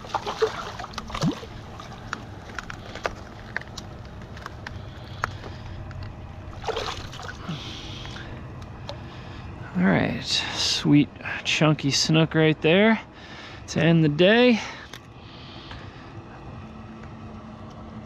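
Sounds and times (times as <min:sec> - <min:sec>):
fish splashing at surface: 0:00.0 - 0:02.1, 0:06.5 - 0:07.7
water sloshing against rocks: 0:00.0 - 0:03.4, 0:06.5 - 0:07.5.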